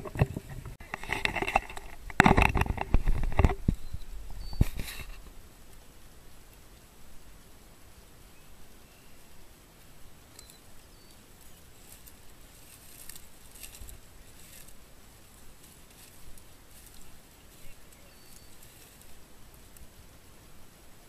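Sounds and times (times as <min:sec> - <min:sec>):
footsteps crunching through dry grass: 0:00.0 - 0:05.4, 0:10.9 - 0:19.9
faint high chirps: 0:10.3 - 0:12.1, 0:16.9 - 0:19.0.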